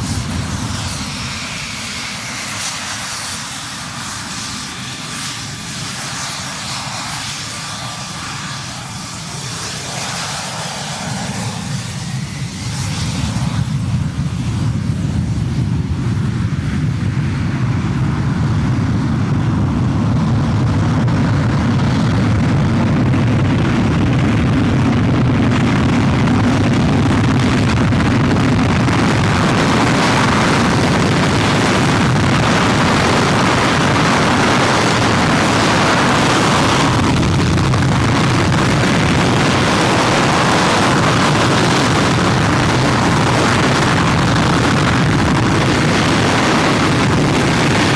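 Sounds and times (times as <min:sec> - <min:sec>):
jet engine running at high power: 0:00.0 - 0:47.9.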